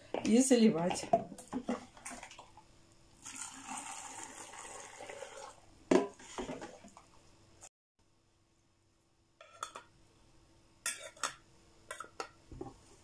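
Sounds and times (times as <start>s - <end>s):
brine pouring into glass jar: 3.2s - 5.6s.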